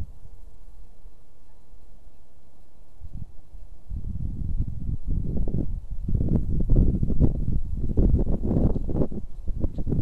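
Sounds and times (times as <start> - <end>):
wind buffeting microphone: 0.0 - 0.4, 3.0 - 10.0.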